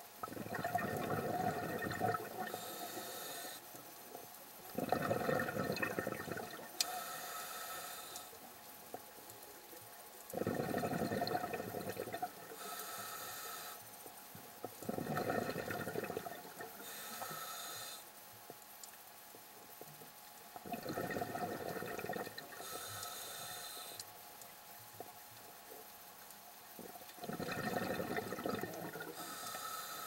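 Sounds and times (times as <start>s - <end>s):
exhaled bubbles underwater: 0.2s - 2.8s, 4.7s - 6.8s, 10.3s - 12.6s, 14.6s - 17.0s, 20.6s - 22.7s, 26.8s - 29.5s.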